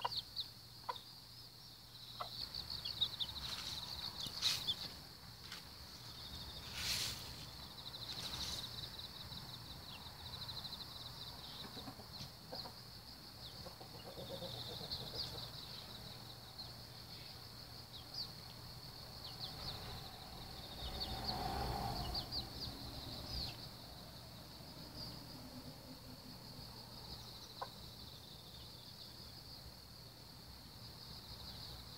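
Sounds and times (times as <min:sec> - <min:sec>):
chicks peeping: 0:00.0 - 0:01.2, 0:01.9 - 0:21.3, 0:22.0 - 0:23.7, 0:27.1 - 0:29.0
insects trilling: 0:00.0 - 0:31.9
hen clucking: 0:02.1 - 0:04.9, 0:11.5 - 0:12.8, 0:13.5 - 0:15.6.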